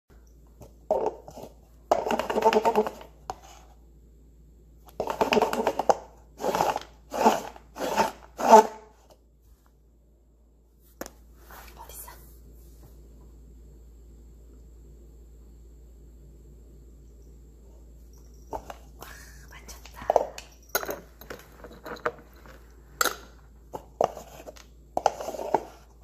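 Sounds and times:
person speaking: 18.9s - 20.6s.

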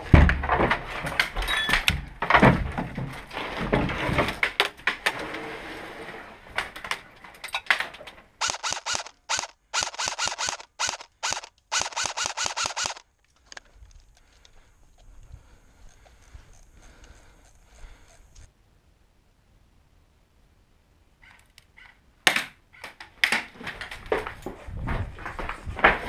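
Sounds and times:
rapid clicking bursts: 8.4s - 13.0s
footsteps on loose boards: 23.2s - 26.0s.

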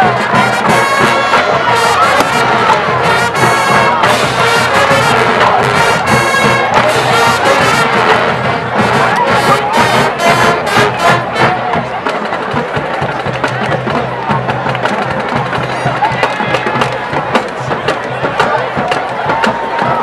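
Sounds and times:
loud sustained brass: 0.0s - 11.6s
marching band playing: 0.0s - 20.0s.

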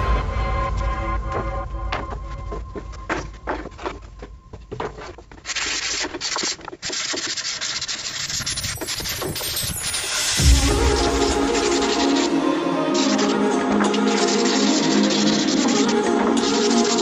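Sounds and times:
hand-sanding plywood: 5.4s - 9.0s, 10.6s - 17.0s.

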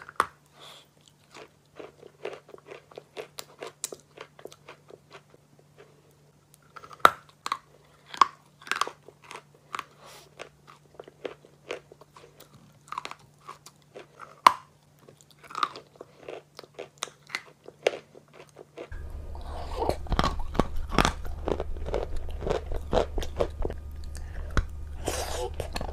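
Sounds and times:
chalk crunching and chewing: 0.0s - 25.9s
low steady hum: 18.9s - 25.9s.

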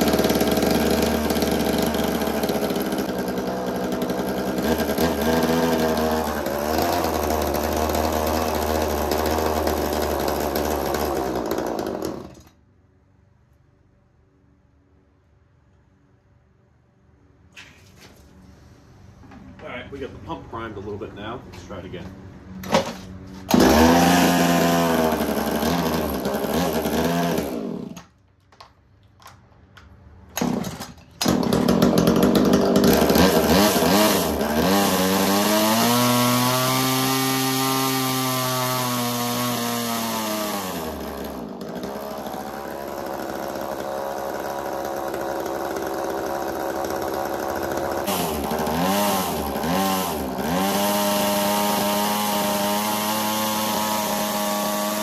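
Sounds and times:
engine revving: 0.0s - 12.4s, 23.4s - 28.0s, 30.3s - 55.0s
two-stroke engine running: 0.0s - 12.5s, 23.5s - 28.0s, 30.3s - 55.0s.

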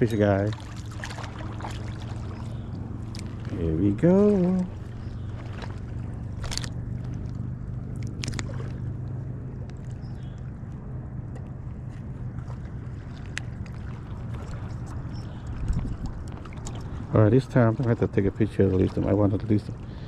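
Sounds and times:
boat motor humming: 0.0s - 20.0s.

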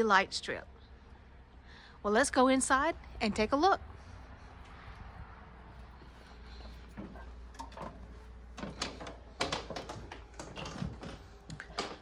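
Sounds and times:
footsteps on metal steps: 5.8s - 12.0s.

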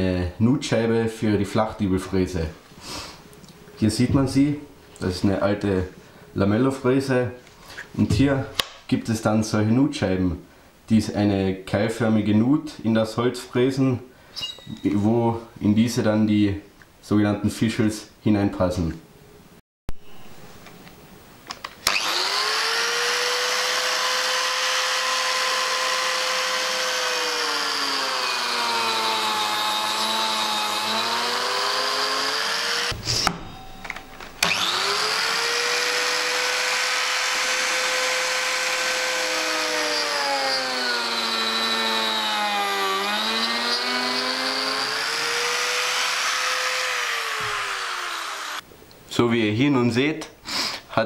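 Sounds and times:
biscuit joiner motor whine: 21.8s - 33.0s, 34.4s - 48.6s.

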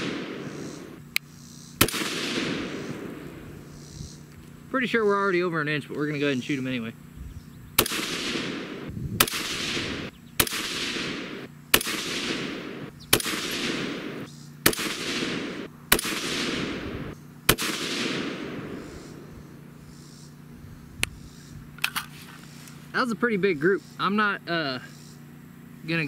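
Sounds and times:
rifle shots with echo: 0.0s - 1.0s, 1.8s - 3.8s, 7.8s - 19.3s.

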